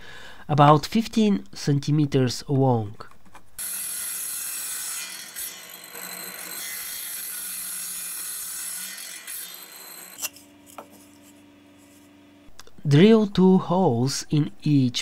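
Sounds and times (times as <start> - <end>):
table saw cutting wood: 3.6 - 12.2.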